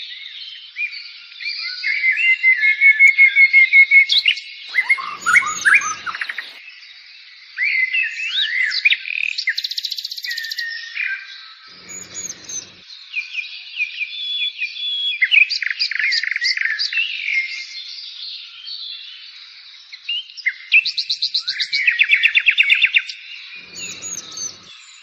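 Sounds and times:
birds chirping and singing: 4.2s - 6.8s, 11.3s - 13.1s, 23.4s - 25.0s
fast buzzy bird trill: 4.7s - 6.6s, 11.7s - 12.8s, 23.6s - 24.8s.

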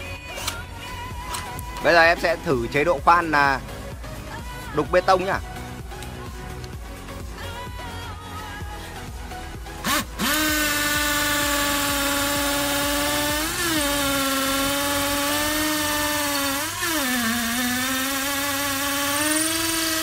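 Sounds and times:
hammer drill boring into brick: 9.8s - 20.0s.

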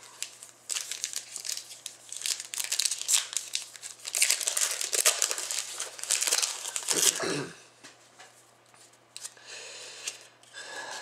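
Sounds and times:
foil wrapper crinkling: 0.0s - 7.2s.

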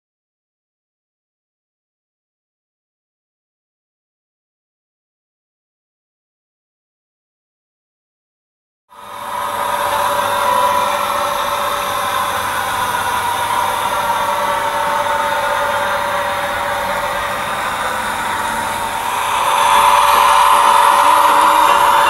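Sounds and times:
model train engine sound hum: 8.9s - 22.0s.

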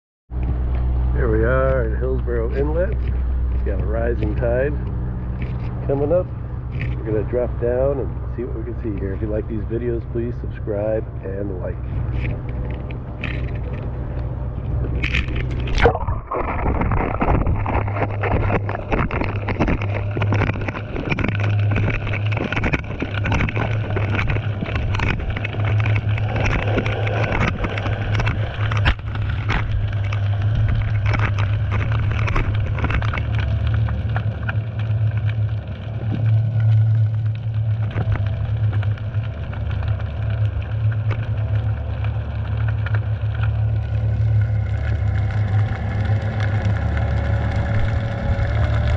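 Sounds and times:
low hum: 0.3s - 48.9s
underwater clicks and pops: 11.9s - 48.9s.

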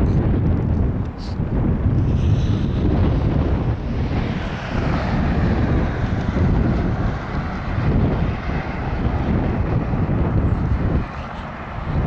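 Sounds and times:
road traffic hiss: 0.0s - 12.0s
wind buffeting microphone: 0.0s - 12.0s.

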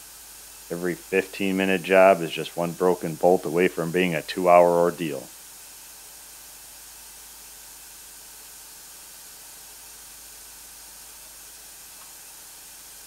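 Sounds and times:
steady hiss: 0.0s - 13.0s
faint low hum: 0.7s - 5.3s.

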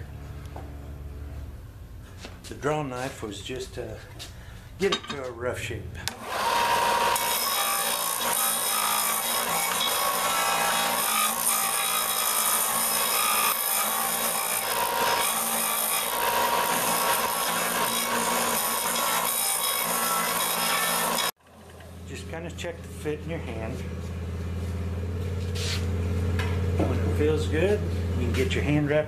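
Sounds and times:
sander grinding wood: 6.1s - 21.4s, 23.5s - 28.8s.

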